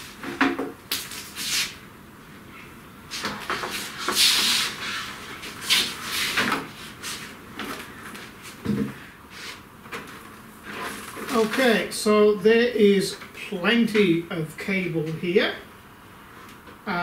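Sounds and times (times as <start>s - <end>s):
electrical cables rustling and scraping: 3.1s - 8.6s, 9.3s - 12.0s.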